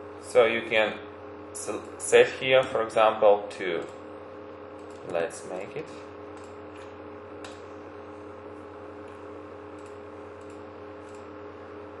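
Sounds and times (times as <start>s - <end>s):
steady low hum: 0.0s - 12.0s
computer mouse clicks: 4.8s - 5.2s, 6.4s - 7.6s, 9.1s - 11.3s.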